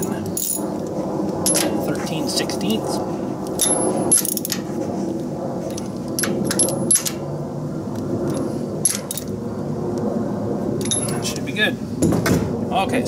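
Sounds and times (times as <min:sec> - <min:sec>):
steady low hum: 0:00.0 - 0:13.0
socket wrench metallic clinks: 0:10.8 - 0:11.2.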